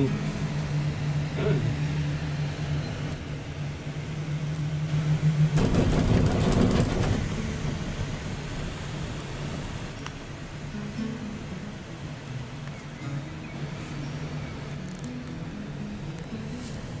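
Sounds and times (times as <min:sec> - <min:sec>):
rattling rumble: 0:00.0 - 0:10.6
gondola cabin hum: 0:00.0 - 0:17.0.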